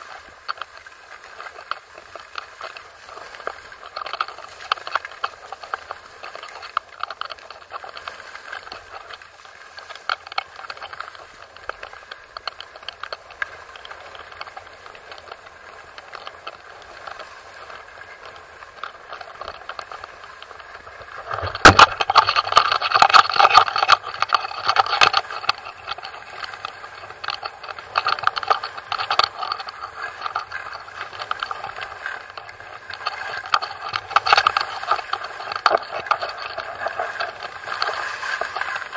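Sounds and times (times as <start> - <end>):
small clicks: 0.0 - 38.9
scraping on snowy slope: 36.0 - 38.9.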